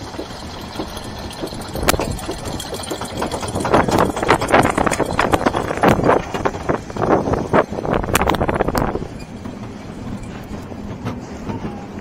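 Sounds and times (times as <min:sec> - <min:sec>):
roller coaster car rattling on track: 0:00.0 - 0:12.0
roller coaster chain lift clatter: 0:00.0 - 0:12.0
sharp clack: 0:00.1 - 0:06.6.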